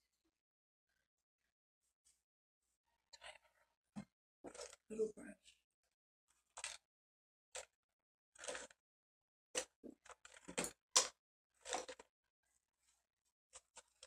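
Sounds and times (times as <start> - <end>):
painting supplies rustling: 4.5 - 4.9, 11.6 - 14.0.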